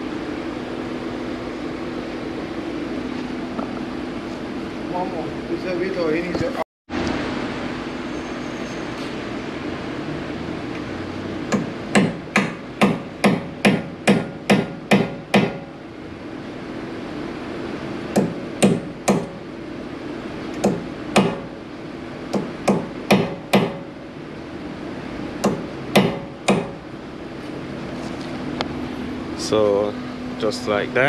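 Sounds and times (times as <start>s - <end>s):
hammer striking metal punch: 11.5s - 15.7s, 18.1s - 19.4s, 20.6s - 21.5s, 22.3s - 23.9s, 25.4s - 26.8s.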